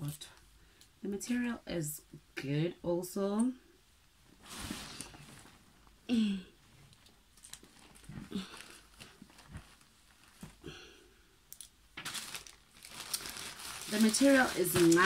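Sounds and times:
clothes rustling: 4.3 - 6.0, 6.6 - 10.9, 11.9 - 15.0.

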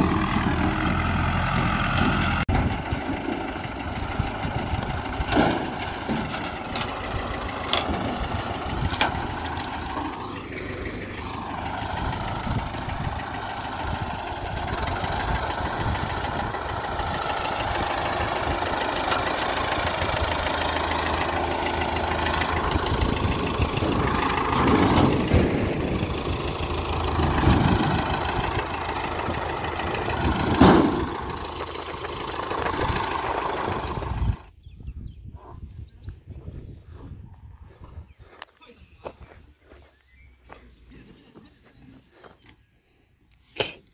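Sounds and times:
engine idling: 0.0 - 34.6.

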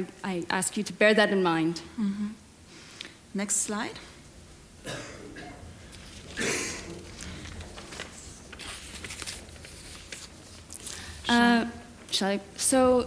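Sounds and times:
low room hum: 0.0 - 13.0
person coughing: 4.8 - 5.7, 6.4 - 7.0
faint clicks and rustles: 5.7 - 12.4.

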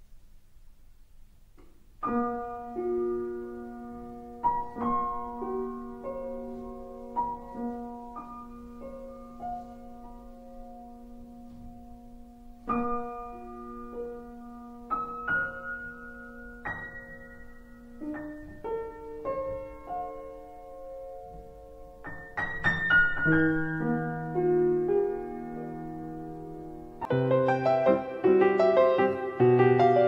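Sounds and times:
slow piano music: 2.0 - 30.0.

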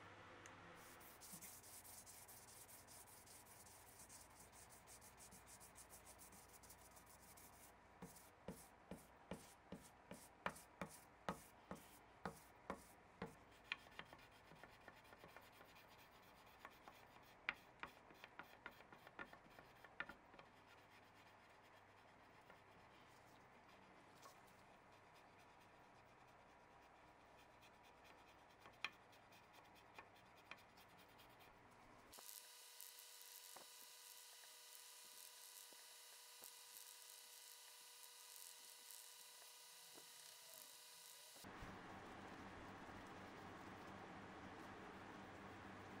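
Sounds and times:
faint sanding strokes: 0.8 - 41.5.

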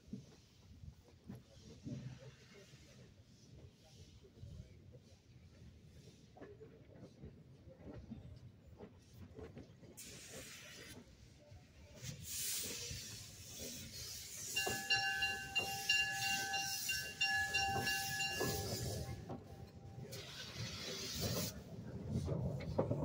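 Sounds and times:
steam locomotive hissing: 10.0 - 23.0.

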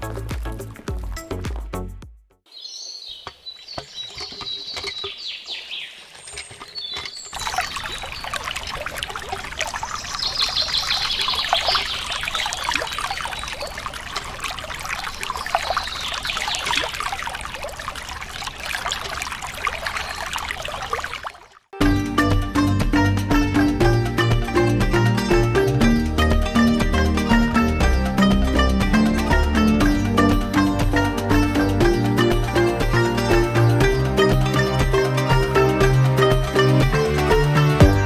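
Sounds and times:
water pouring into pond: 6.1 - 23.1.

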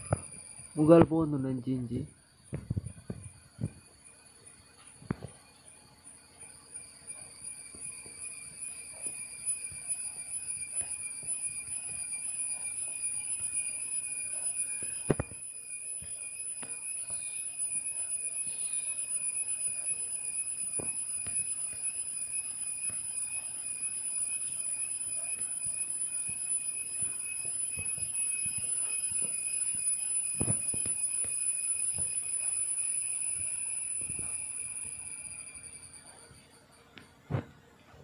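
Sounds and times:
high-pitched whine: 0.0 - 38.0.

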